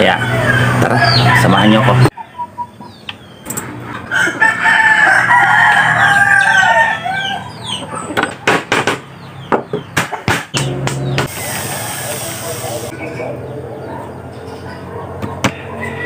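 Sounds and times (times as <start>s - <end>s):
rooster crowing: 0.0s - 2.0s, 4.0s - 7.8s, 11.3s - 12.7s, 15.5s - 16.0s.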